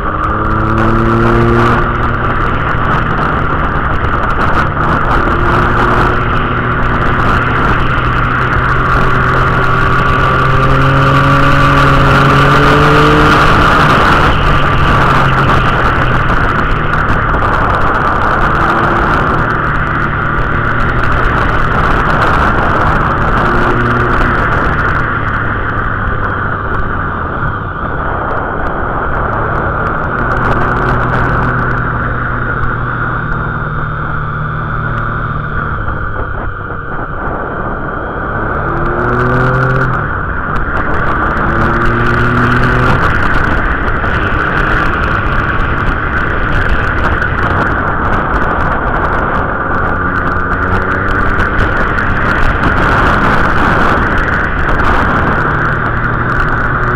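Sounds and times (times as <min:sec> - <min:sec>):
motorcycle engine revving: 0:00.0 - 0:56.9
wind rushing over microphone: 0:00.0 - 0:56.9.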